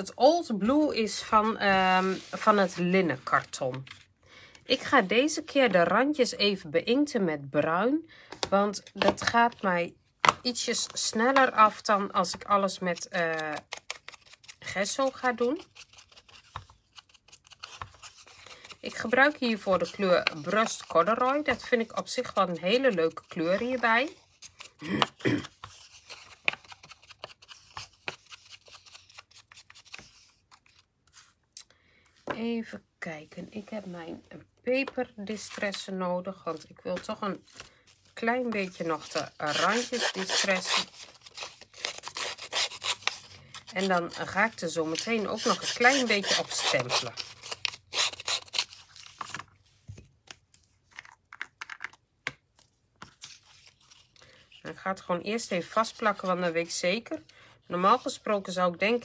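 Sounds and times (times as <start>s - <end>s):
paper rustling: 13.1s - 31.4s
tool scrubbing paper: 38.6s - 48.6s.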